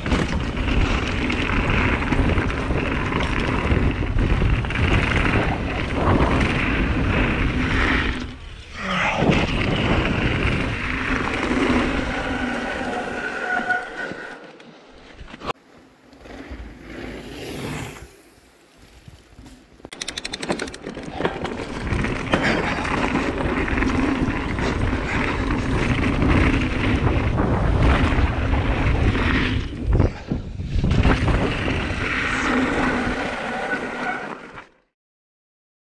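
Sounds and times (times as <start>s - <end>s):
bike tyres crunching over stones: 0.0s - 8.8s, 14.7s - 19.9s, 20.7s - 29.8s
bike rattling: 0.0s - 34.0s
wind rushing: 16.2s - 19.3s
clicks: 19.8s - 21.4s.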